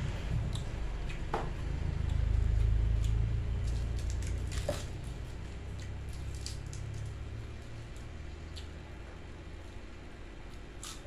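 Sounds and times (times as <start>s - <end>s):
low rumble: 0.0s - 7.8s
person chewing: 2.0s - 6.9s, 8.0s - 8.8s.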